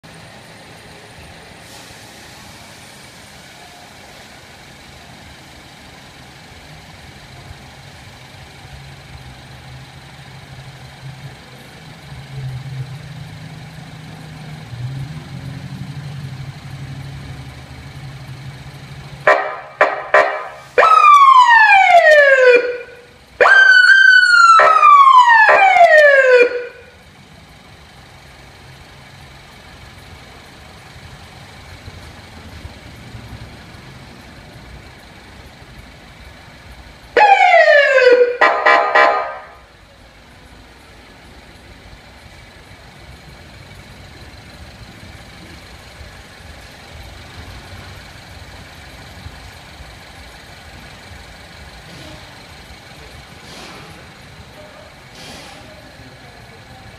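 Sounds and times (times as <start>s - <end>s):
car engine idling: 0.0s - 56.9s
electronic police siren: 19.3s - 27.0s, 37.2s - 39.6s.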